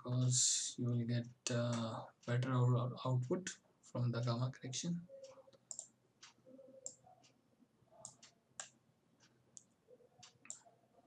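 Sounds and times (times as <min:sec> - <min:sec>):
computer mouse clicks: 0:05.1 - 0:07.4, 0:08.0 - 0:10.7.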